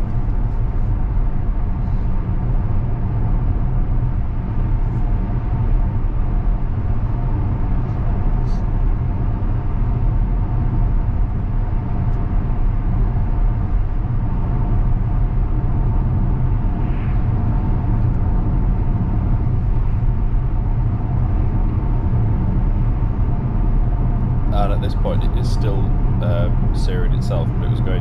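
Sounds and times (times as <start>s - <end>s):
faint steady hum: 0.0s - 28.0s
road and tyre noise in car: 0.0s - 28.0s.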